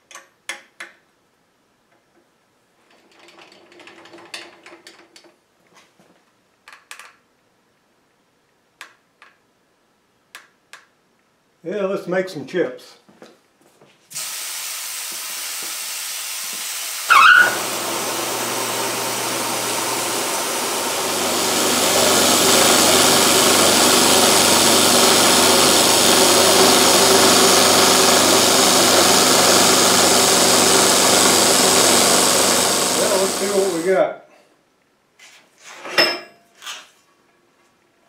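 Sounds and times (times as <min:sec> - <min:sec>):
milling machine cutting metal: 0:16.7 - 0:33.9
loud squeal: 0:17.1 - 0:17.8
spray nozzle hiss: 0:32.9 - 0:33.9.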